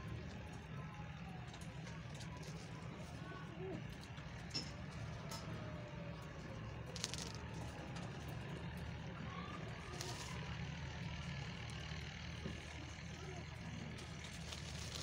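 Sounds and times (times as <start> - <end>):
low mechanical engine rumble: 0.0 - 15.0
feed sack rustling: 14.0 - 15.0.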